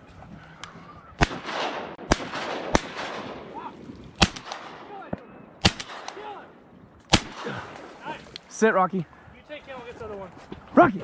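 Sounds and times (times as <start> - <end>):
loud shotgun shots: 1.2 - 3.6, 4.2 - 6.4, 7.1 - 8.0.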